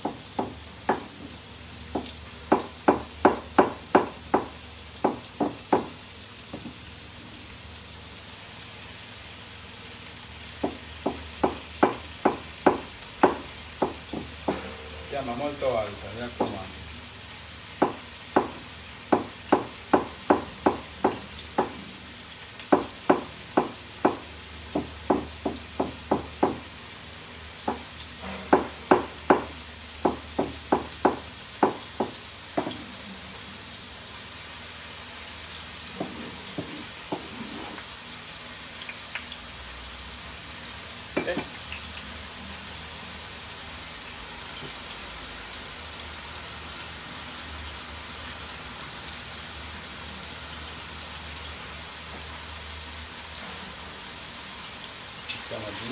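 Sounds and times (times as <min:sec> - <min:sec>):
knife chopping on wooden board: 0:00.0 - 0:01.4, 0:02.0 - 0:06.8, 0:10.6 - 0:14.7, 0:16.4 - 0:16.6, 0:17.8 - 0:21.8, 0:22.7 - 0:26.6, 0:27.7 - 0:27.9, 0:28.5 - 0:32.9, 0:36.0 - 0:37.8
mushrooms sizzling in hot oil: 0:00.0 - 0:55.9.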